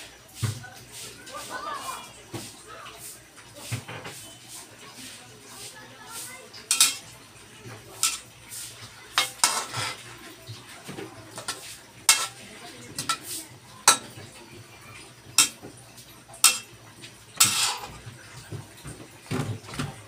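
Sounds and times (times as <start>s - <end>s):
metal spatula clinking on wok: 6.7s - 7.0s, 8.0s - 8.3s, 9.1s - 10.0s, 11.4s - 12.4s, 13.0s - 14.2s, 15.4s - 15.6s, 16.4s - 16.8s, 17.4s - 18.0s.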